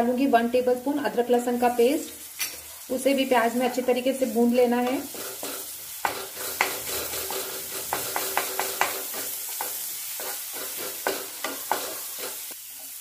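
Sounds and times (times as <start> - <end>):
onions sizzling in hot oil: 0.0 - 13.0
spatula tapping and scraping pan: 4.8 - 13.0.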